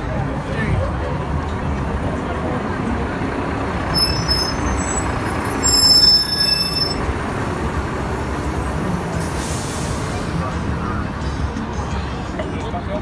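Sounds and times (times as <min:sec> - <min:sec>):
street traffic rumbling: 0:00.0 - 0:13.0
heavy vehicle brakes squealing: 0:03.8 - 0:07.1.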